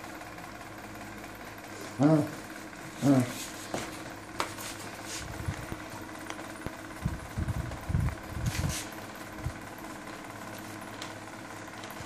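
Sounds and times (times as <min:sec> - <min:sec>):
hand patting and rubbing dog: 0:03.3 - 0:05.6.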